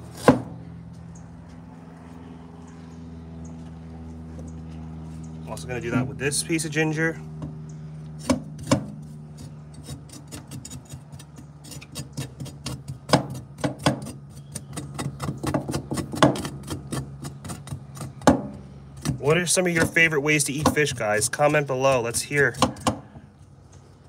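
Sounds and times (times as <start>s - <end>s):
cleaver chopping on wooden board: 0.2s - 0.5s, 8.2s - 9.0s, 9.8s - 21.1s, 22.0s - 23.3s.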